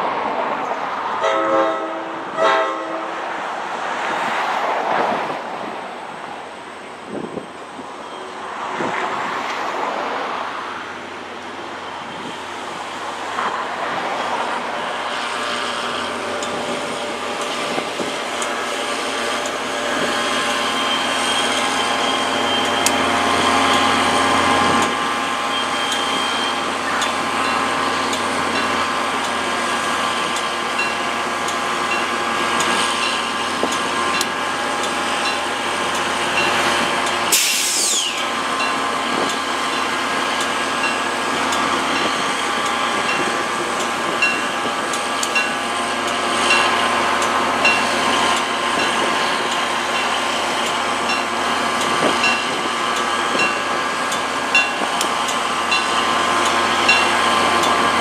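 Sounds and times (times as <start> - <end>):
diesel locomotive idling: 10.6 - 58.0
air hiss burst: 37.3 - 38.3.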